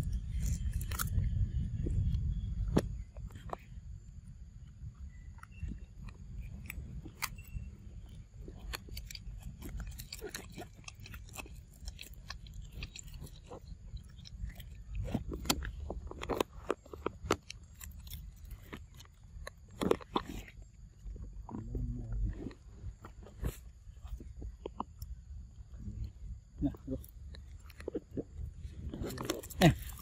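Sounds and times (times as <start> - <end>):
low steady rumble: 0.0 - 30.0
monkey chewing milk carton: 5.1 - 21.6, 26.0 - 30.0.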